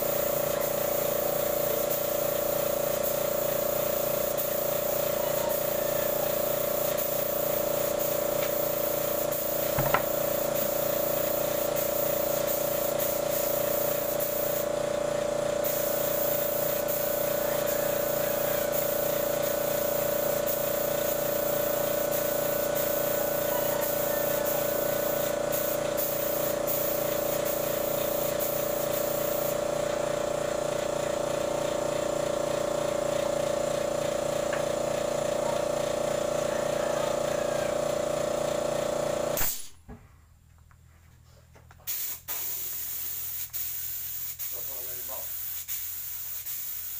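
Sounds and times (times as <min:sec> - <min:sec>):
air compressor running: 0:00.0 - 0:39.8, 0:41.9 - 0:46.9
short knock: 0:09.8 - 0:10.1.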